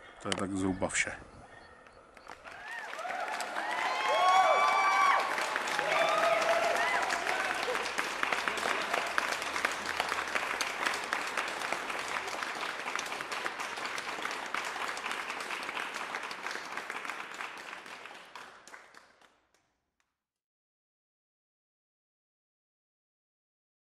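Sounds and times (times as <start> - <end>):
applause: 2.1 - 20.1.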